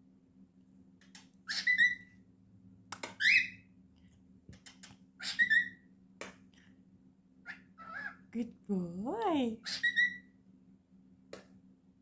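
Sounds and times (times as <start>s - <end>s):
cockatiel whistling: 1.5s - 2.1s, 3.2s - 3.6s, 5.2s - 5.8s, 9.7s - 10.3s.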